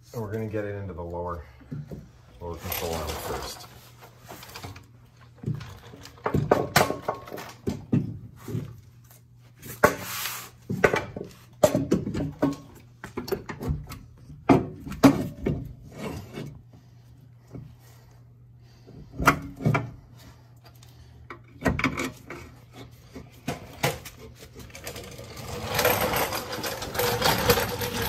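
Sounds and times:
metal parts knocking and scraping: 21.5s - 28.0s.

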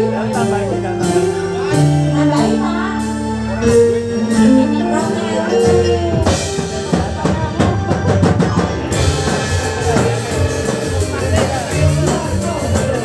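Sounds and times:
live band playing: 0.0s - 13.0s
voice on microphone: 0.0s - 13.0s
fast drum beat: 3.7s - 13.0s.

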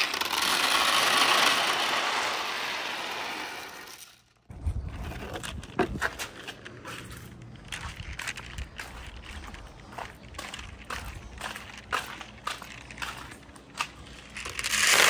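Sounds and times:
marbles rattling down a run: 0.0s - 4.2s, 14.4s - 15.0s.

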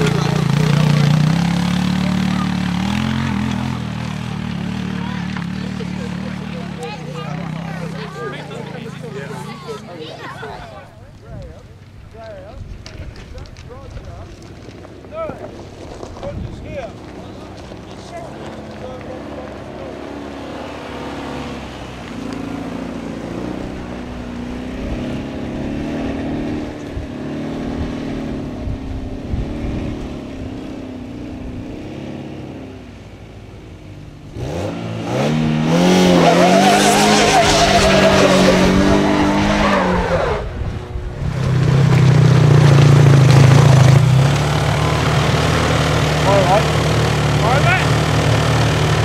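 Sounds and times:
car engine revving on climb: 0.0s - 10.4s, 14.3s - 49.0s
loose stones under spinning tyres: 11.1s - 20.0s, 36.7s - 49.0s.

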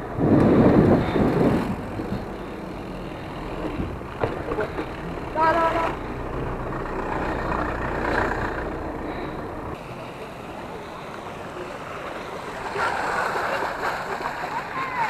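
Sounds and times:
car engine rumbling: 0.0s - 14.9s
fountain splashing: 9.8s - 15.0s.

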